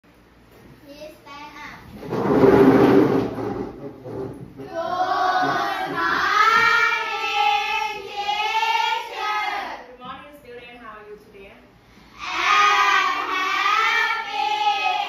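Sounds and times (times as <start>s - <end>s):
children chanting in unison: 4.7s - 9.8s, 12.2s - 15.0s.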